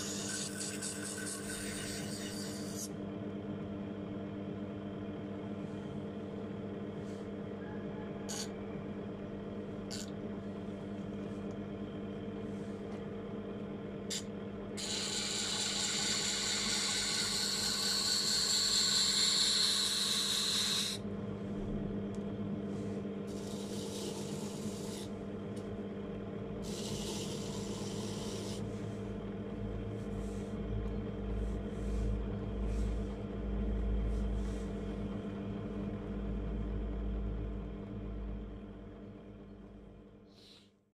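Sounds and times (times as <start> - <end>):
bench grinder motor humming: 14.8 - 21.0, 23.3 - 25.1, 26.6 - 28.7.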